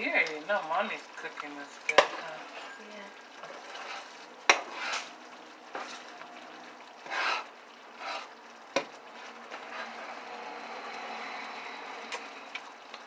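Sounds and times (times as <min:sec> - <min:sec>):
faint steady sizzle: 0:00.0 - 0:13.0
utensil clanking against pot: 0:01.8 - 0:02.3
utensil scraping swishes: 0:03.6 - 0:05.1, 0:07.0 - 0:08.3.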